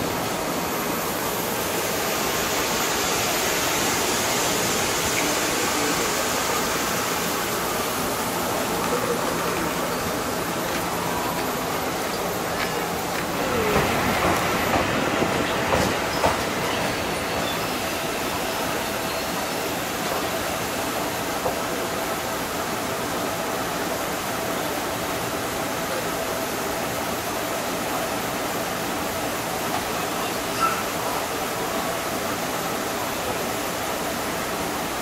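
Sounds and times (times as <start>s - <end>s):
electric train running: 0.0s - 22.9s
train clicks: 8.0s - 18.9s.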